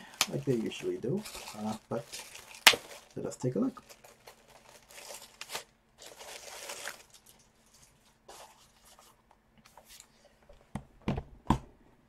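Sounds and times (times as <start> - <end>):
plastic sleeve rustling: 0.0 - 10.4.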